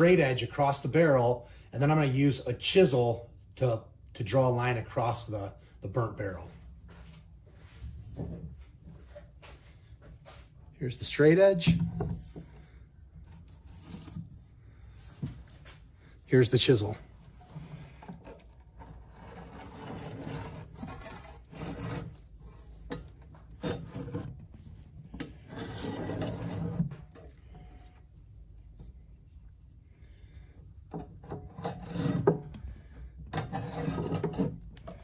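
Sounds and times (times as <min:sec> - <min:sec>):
chisel rasping on wood: 0:17.6 - 0:24.3, 0:25.2 - 0:27.9, 0:31.2 - 0:32.6, 0:33.3 - 0:34.6.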